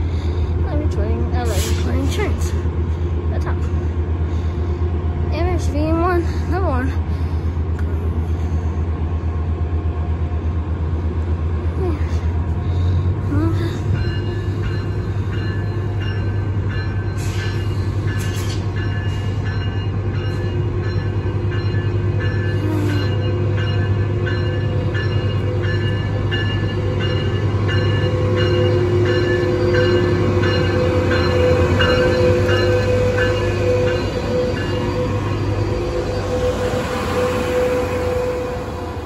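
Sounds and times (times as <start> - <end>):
diesel locomotive running: 0.0 - 39.0
locomotive bell ringing: 12.0 - 38.8.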